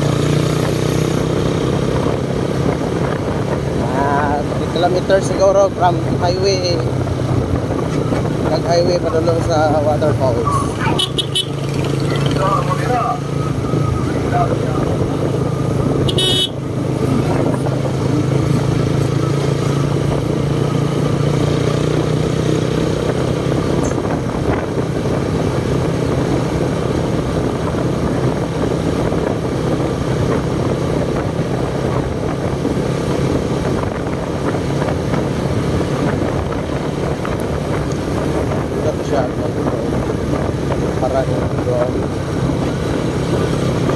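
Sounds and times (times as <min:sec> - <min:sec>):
motorcycle engine running: 0:00.0 - 0:43.9
road and wind noise: 0:00.0 - 0:43.9
high-pitched tone: 0:10.2 - 0:14.3.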